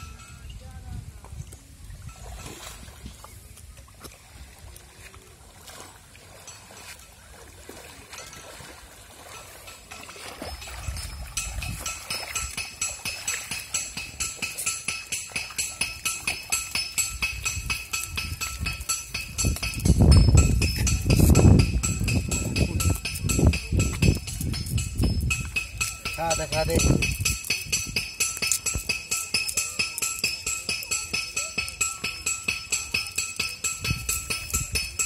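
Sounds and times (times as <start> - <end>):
water sloshing around wading legs: 1.1 - 35.0
music with jingling beat: 9.3 - 35.0.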